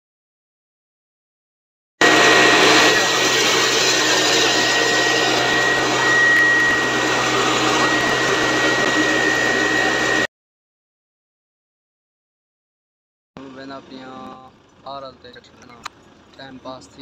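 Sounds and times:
constant high whine: 2.0 - 10.3, 13.4 - 17.0
flour mill machinery whirring: 2.0 - 10.3.

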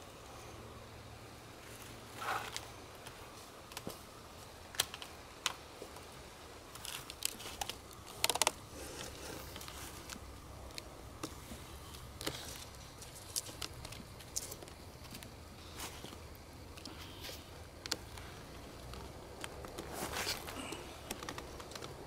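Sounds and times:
rustling scrapes: 19.8 - 20.6.

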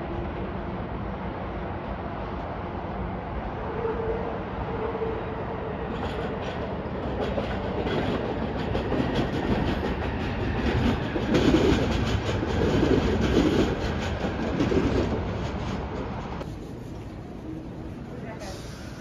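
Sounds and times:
train wheels rumbling and clicking: 5.9 - 19.0.

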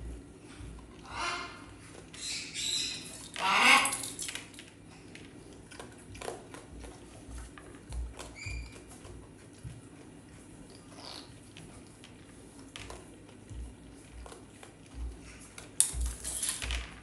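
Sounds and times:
parrot squawking: 1.0 - 4.0
kibble crunching in steel bowl: 1.9 - 16.7.

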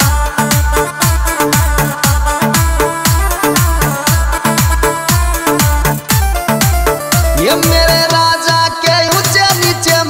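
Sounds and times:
sustained melody line: 0.0 - 8.4.

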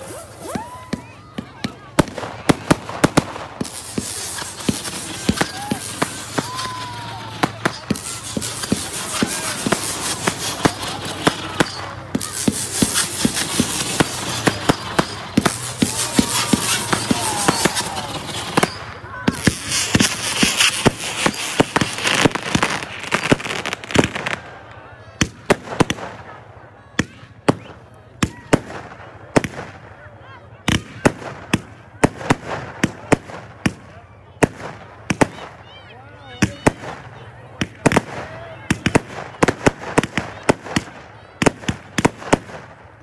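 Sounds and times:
fireworks bangs: 0.0 - 43.0
crackling hiss: 2.0 - 24.5.

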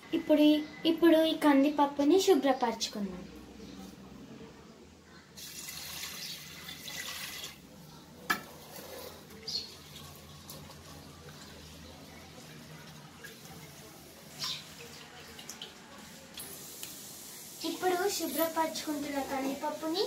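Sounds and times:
water pouring and splashing: 5.4 - 7.6, 8.6 - 20.0.

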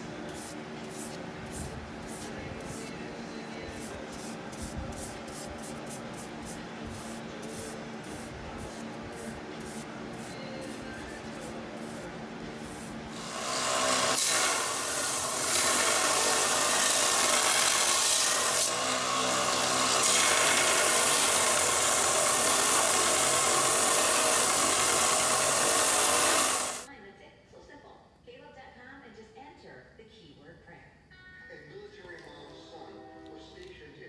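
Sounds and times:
belt sander running: 12.6 - 26.9
blade grinding on sanding belt: 12.7 - 26.9.

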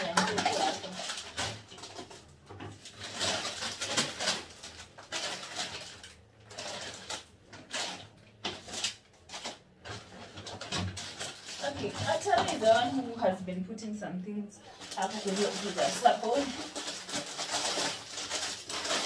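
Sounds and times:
paper bag rustling: 0.0 - 13.4, 14.6 - 19.0
plastic packaging crinkling: 0.0 - 13.4, 14.6 - 19.0.

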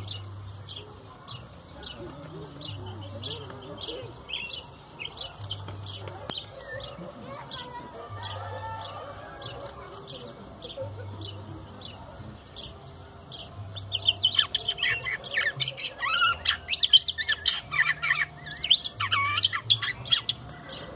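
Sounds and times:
bird chirping: 0.0 - 20.9
bird whistling song: 13.4 - 20.9.

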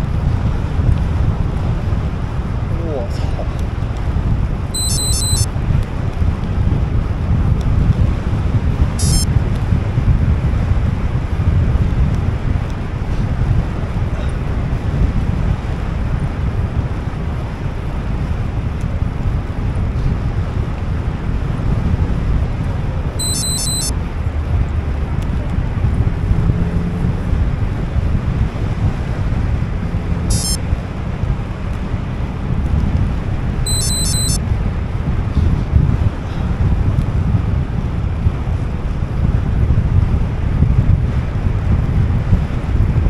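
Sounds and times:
wind buffeting microphone: 0.0 - 4.8, 5.5 - 23.2, 24.0 - 33.7, 34.4 - 43.0
high-pitched chirps: 4.8 - 5.5, 9.0 - 9.2, 23.2 - 23.9, 30.3 - 30.6, 33.7 - 34.4.

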